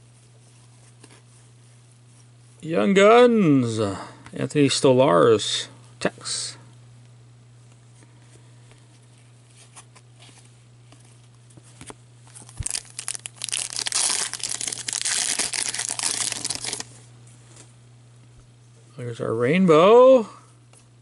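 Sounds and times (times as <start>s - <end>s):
foil wrapper crinkling and tearing: 12.2s - 17.0s.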